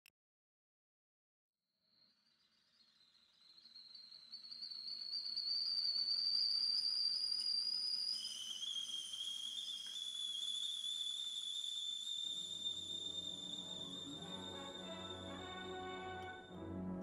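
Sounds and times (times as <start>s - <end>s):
kettle whistling: 3.0s - 16.6s.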